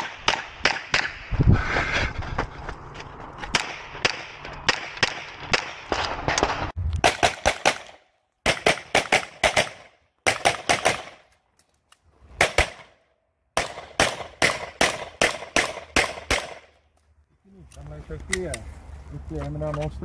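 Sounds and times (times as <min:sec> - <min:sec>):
pistol shots: 0:00.0 - 0:01.2, 0:03.5 - 0:11.2, 0:12.4 - 0:13.0, 0:13.6 - 0:16.8.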